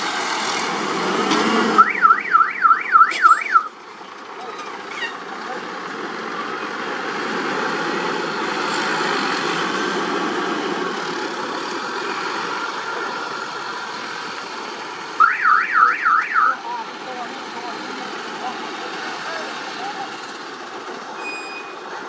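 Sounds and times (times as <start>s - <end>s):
diesel truck engine running: 0.0s - 21.2s
electronic warbling alarm: 1.8s - 3.7s, 15.2s - 16.6s.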